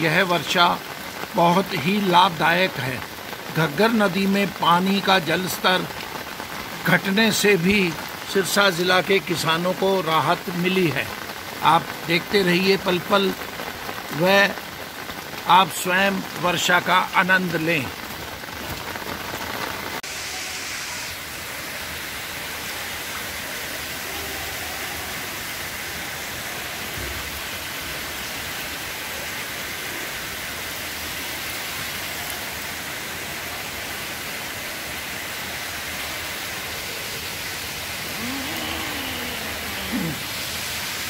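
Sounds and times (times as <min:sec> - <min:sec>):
heavy rain pouring: 0:00.0 - 0:41.0.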